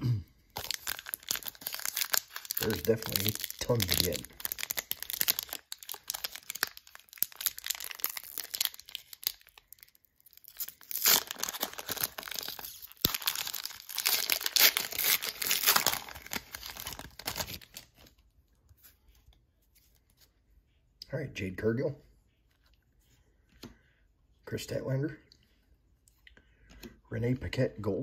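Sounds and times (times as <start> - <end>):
plastic wrapper crackling: 0.5 - 18.2.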